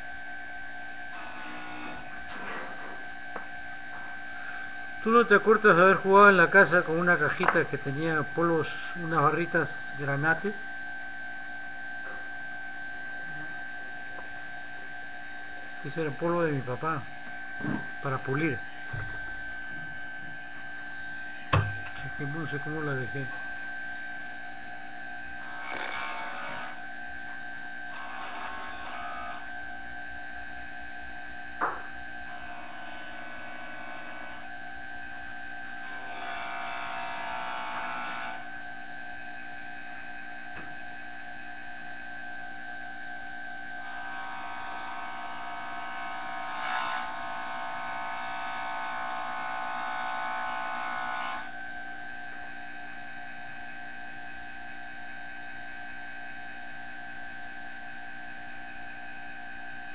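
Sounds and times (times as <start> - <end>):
tool grinding on abrasive disc: 1.1 - 2.8, 25.4 - 26.8, 27.9 - 29.4
sharpener motor whining: 1.1 - 3.4, 25.4 - 26.8, 27.9 - 29.5, 35.6 - 38.5.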